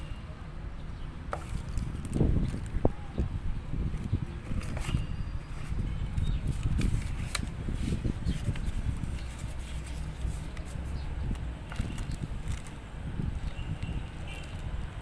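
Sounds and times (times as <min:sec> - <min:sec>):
paper and cardboard rustling: 0:03.9 - 0:12.8.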